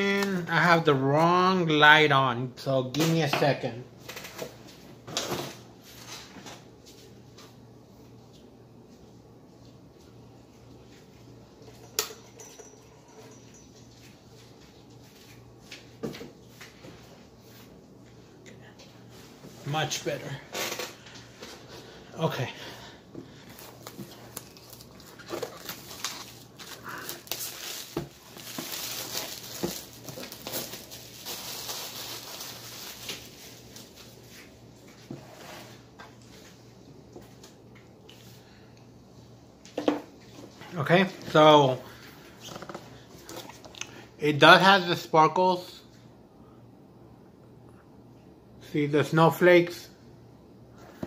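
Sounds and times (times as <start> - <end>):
steady low hum: 3.7 - 44.4
plastic wrapping crinkling: 23.4 - 34.5.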